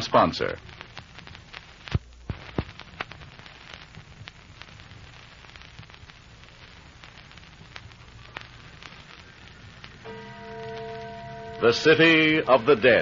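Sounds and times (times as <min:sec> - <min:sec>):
recording hiss and crackle: 0:00.0 - 0:13.0.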